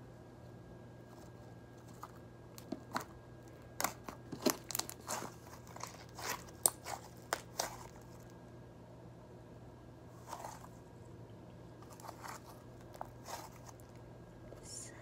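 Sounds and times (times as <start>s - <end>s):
slime squishing and popping: 3.8s - 8.0s.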